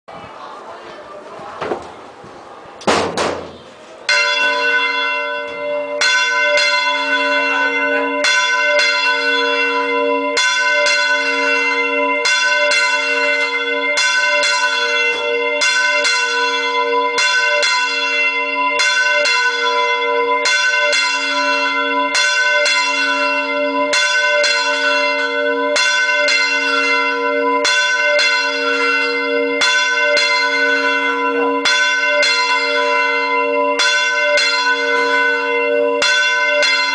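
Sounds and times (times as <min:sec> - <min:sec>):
church bell ringing: 0:04.0 - 0:36.9.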